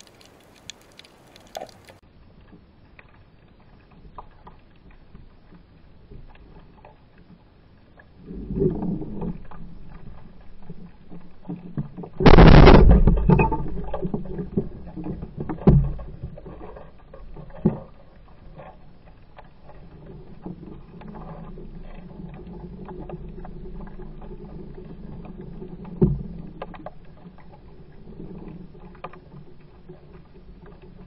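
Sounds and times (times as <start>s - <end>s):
muffled underwater water noise: 0.0s - 31.0s.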